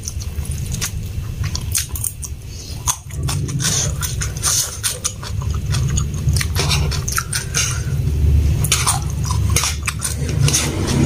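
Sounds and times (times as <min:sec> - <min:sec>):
close-miked chewing and mouth clicks: 0:00.0 - 0:11.0
motorbikes going by: 0:03.2 - 0:11.0.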